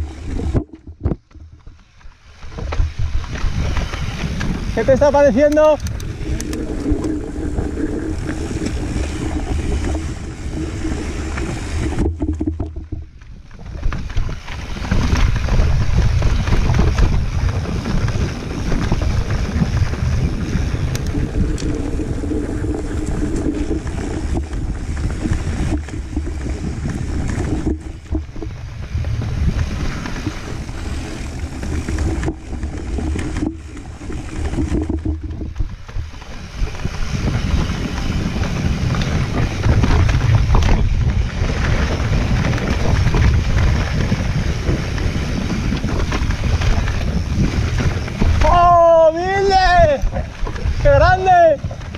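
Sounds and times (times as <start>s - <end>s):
bike rattling over bumps: 0.0s - 51.9s
bike rolling on dirt trail: 0.0s - 51.9s
wind on microphone: 0.0s - 51.9s.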